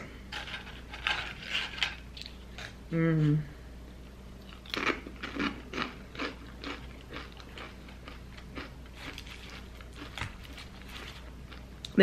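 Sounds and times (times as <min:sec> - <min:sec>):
person chewing food: 0:04.4 - 0:12.0.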